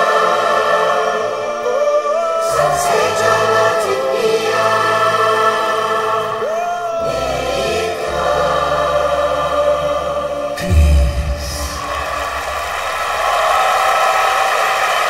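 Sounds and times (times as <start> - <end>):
children's choir singing: 0.0 - 15.0
deep bass notes: 10.6 - 13.0.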